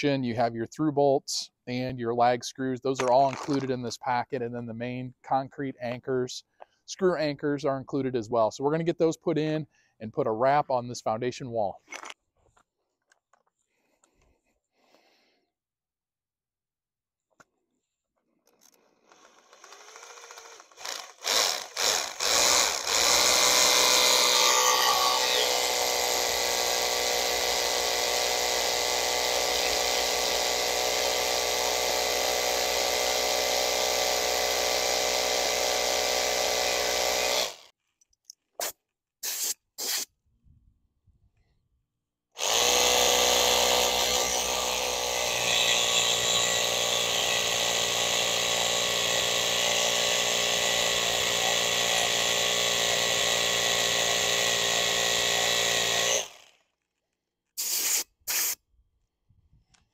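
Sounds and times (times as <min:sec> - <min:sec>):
hammer drill boring into concrete: 0:03.0 - 0:03.7, 0:18.6 - 0:37.7, 0:42.4 - 0:56.8.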